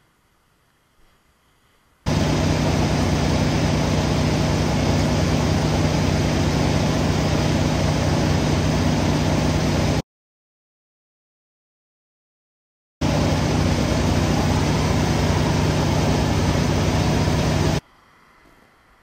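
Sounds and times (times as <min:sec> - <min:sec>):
engine running with low hum: 0:02.1 - 0:10.0, 0:13.0 - 0:17.8.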